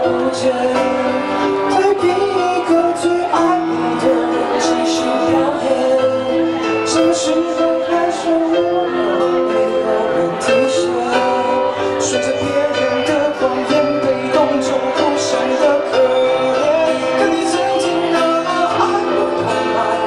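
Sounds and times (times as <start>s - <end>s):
guitar: 0.0s - 20.0s
keyboard: 0.0s - 20.0s.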